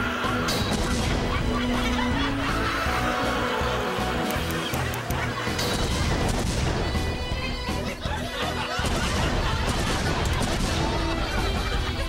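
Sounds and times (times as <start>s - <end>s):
comedic background music: 0.0s - 12.0s
fire crackling: 4.1s - 7.6s, 8.8s - 12.0s
propane tank explosion: 5.6s - 7.2s, 8.8s - 11.8s.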